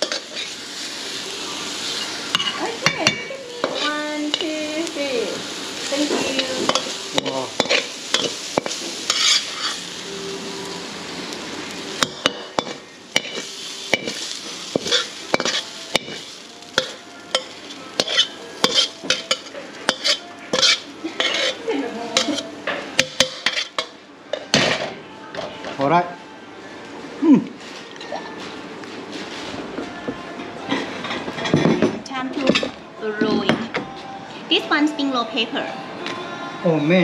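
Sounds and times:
stir-fry sizzling in a wok: 0.0s - 28.0s
metal ladle scraping a wok: 6.4s - 9.8s, 18.0s - 21.6s.

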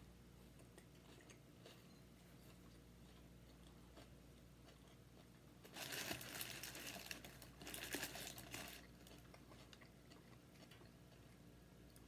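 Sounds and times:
paper wrapper crinkling: 5.7s - 8.9s.

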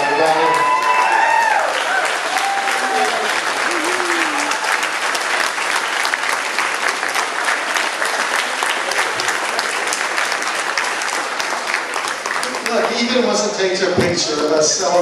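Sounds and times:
crowd applauding: 0.0s - 13.8s.

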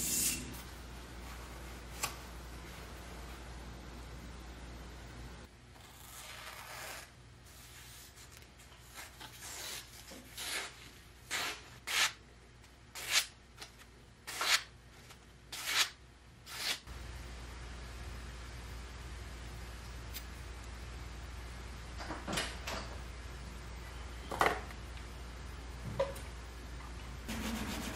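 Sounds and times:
knife slicing paper: 15.5s - 16.8s.

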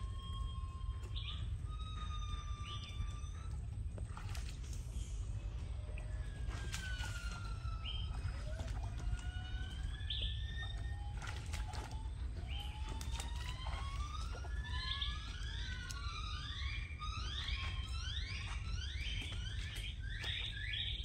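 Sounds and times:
steady low rumble: 0.0s - 21.0s
splashing from wading in water: 3.8s - 21.0s
gliding whistle-like tones: 4.9s - 21.0s.

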